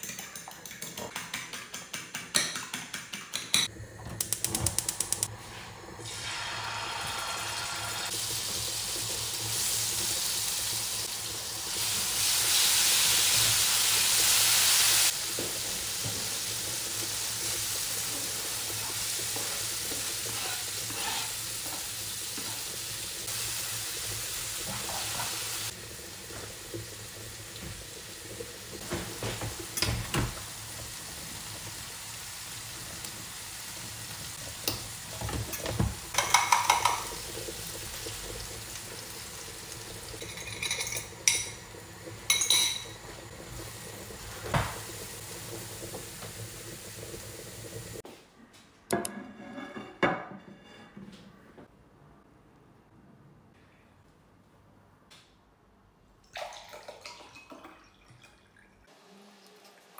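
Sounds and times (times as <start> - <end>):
vegetables sizzling in oil: 6.0 - 48.0
utensils scraping and clinking: 20.2 - 21.4.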